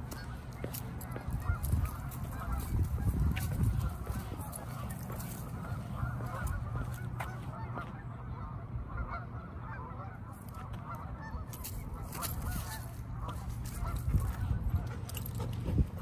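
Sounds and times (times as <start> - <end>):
geese honking: 0.0 - 15.8.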